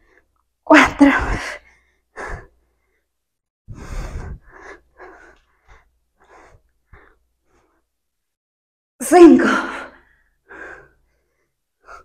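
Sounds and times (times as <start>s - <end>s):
woman panting: 1.0s - 3.1s, 3.7s - 7.8s, 10.0s - 12.0s.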